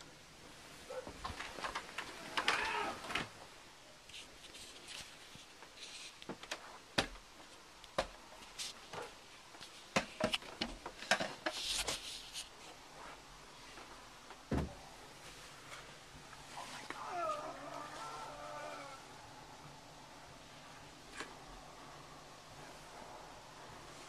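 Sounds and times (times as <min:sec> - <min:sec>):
sharp knocks and thuds: 0:14.5 - 0:14.8.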